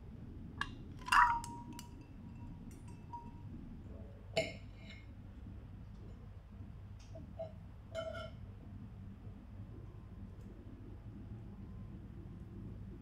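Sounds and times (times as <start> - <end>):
steady low hum: 0.0 - 13.0
cutlery clinking on tableware: 1.0 - 3.4.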